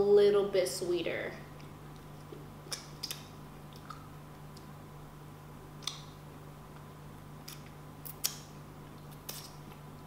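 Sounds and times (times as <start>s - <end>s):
faint low hum: 0.0s - 10.0s
wet mouth clicks from chewing: 2.3s - 4.7s, 5.8s - 6.1s.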